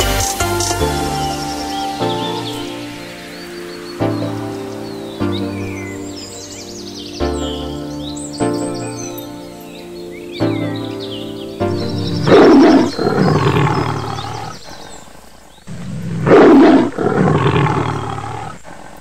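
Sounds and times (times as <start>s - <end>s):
background music: 0.0s - 14.5s
tiger roaring: 12.3s - 14.6s, 15.7s - 18.6s.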